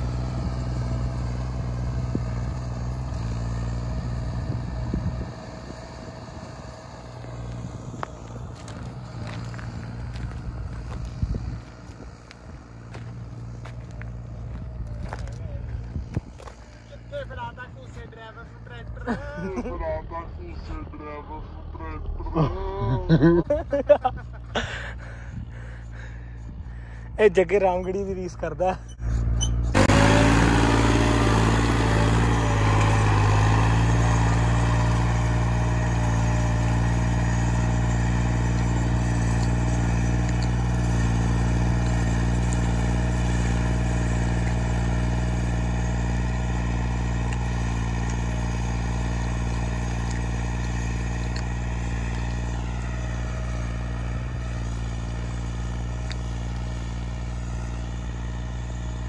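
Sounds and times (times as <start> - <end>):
tractor diesel engine running: 0.0 - 59.0.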